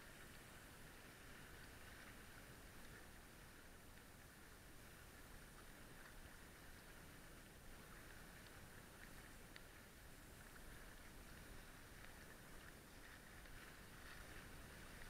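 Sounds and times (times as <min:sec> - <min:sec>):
water washing along boat hulls: 0:00.0 - 0:15.0
light ticks: 0:08.0 - 0:09.8.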